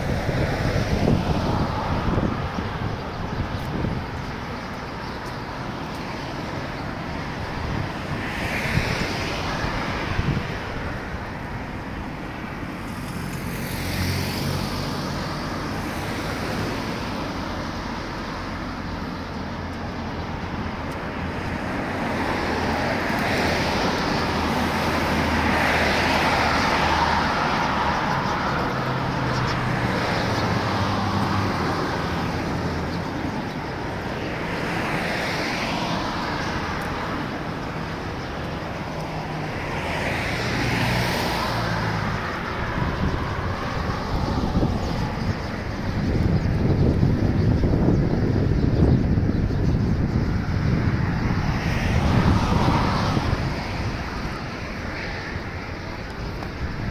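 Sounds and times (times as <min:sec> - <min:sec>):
steady engine hum: 0:00.0 - 0:56.9
vehicles passing: 0:00.0 - 0:56.9.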